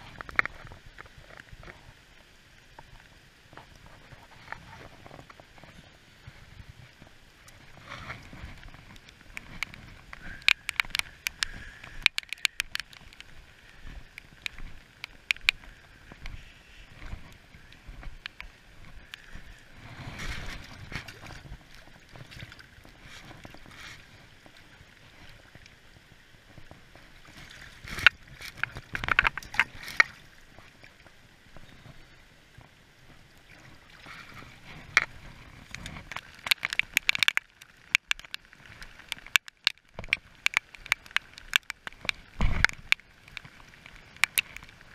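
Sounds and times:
water sloshing and splashing: 0:00.0 - 0:44.9
sharp clicks and knocks: 0:08.7 - 0:13.3, 0:14.2 - 0:16.4, 0:35.7 - 0:38.4, 0:39.0 - 0:44.8.

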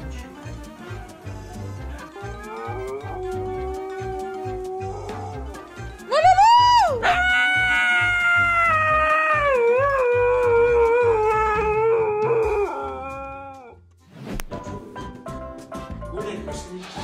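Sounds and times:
background music with low beat: 0:00.0 - 0:17.0
dog howling: 0:02.2 - 0:13.8.

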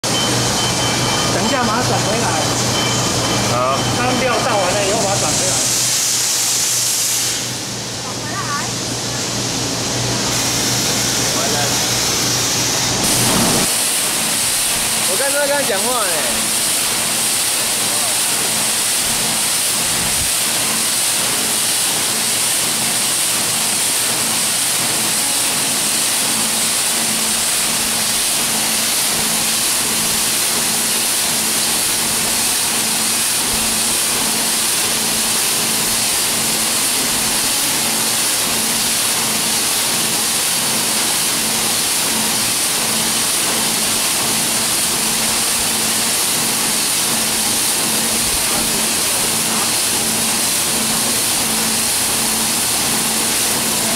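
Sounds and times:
motor hum: 0:12.2 - 0:14.0.

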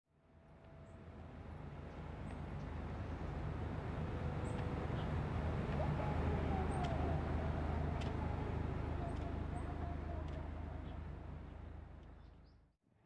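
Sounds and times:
steady low rumble: 0:00.4 - 0:12.7
faint higher calls or voices: 0:04.3 - 0:11.8.

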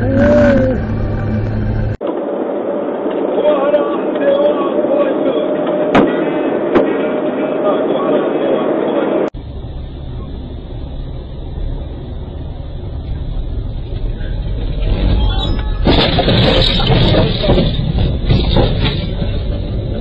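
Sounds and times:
car road and engine rumble: 0:00.0 - 0:03.4, 0:09.0 - 0:20.0
dense crackling noise: 0:00.8 - 0:20.0.

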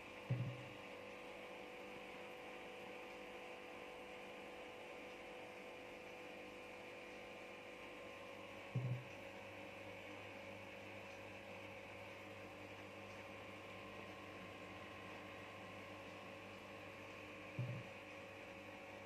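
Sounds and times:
aquarium air pump humming: 0:00.0 - 0:19.0
short low thump: 0:08.8 - 0:09.0.

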